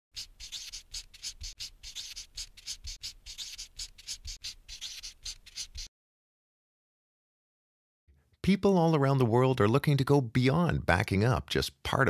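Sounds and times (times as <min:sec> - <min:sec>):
quick scratching strokes: 0:00.1 - 0:05.9.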